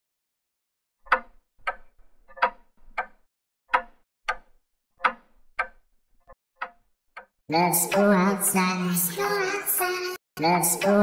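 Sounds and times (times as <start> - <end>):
alarm clock ticking: 1.1 - 8.5.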